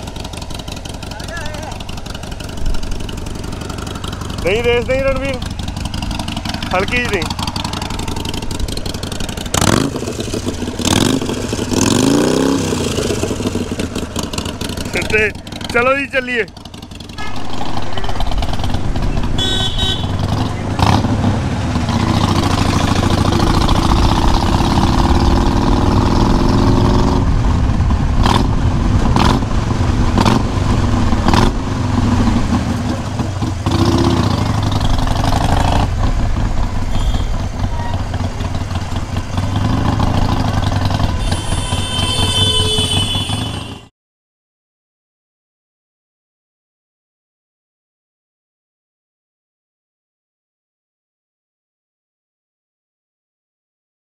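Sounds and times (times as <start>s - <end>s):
motorcycle engine running: 0.0s - 43.9s
vehicle horn toots: 17.2s - 18.5s, 19.1s - 20.3s, 36.9s - 38.0s, 41.2s - 43.9s.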